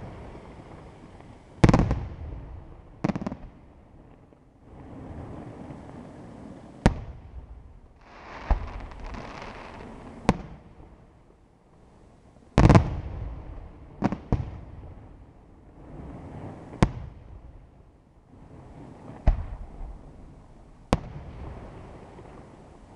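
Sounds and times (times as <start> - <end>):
rushing hiss and low rumble: 0.0 - 22.9.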